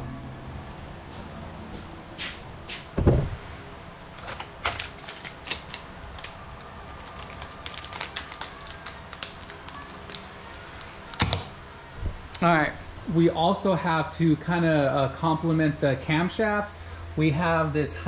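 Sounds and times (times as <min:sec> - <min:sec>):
low thump: 0:03.0 - 0:03.4.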